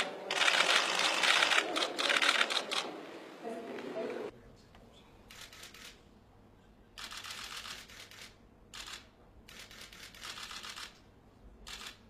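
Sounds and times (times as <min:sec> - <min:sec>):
camera shutters clicking rapidly: 0:00.3 - 0:02.9, 0:07.0 - 0:11.0, 0:11.7 - 0:12.0.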